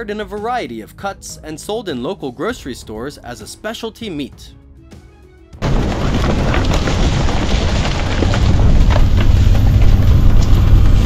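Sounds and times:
rumble of bison hooves: 0:05.6 - 0:11.0.

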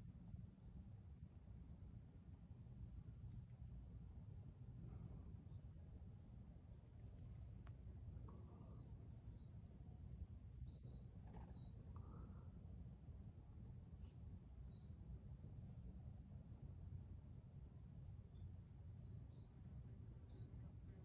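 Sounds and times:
high-pitched insect trill: 0:00.5 - 0:21.0
bird chirping: 0:08.3 - 0:13.5, 0:14.6 - 0:15.0.

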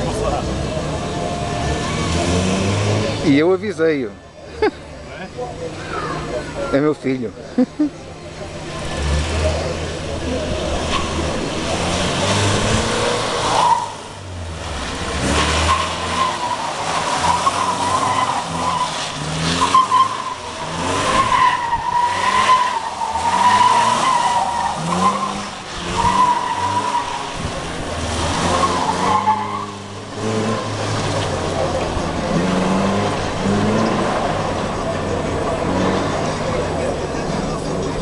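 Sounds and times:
car engine revving hard: 0:00.0 - 0:03.4, 0:08.6 - 0:37.7
tyres squealing: 0:14.8 - 0:36.1.

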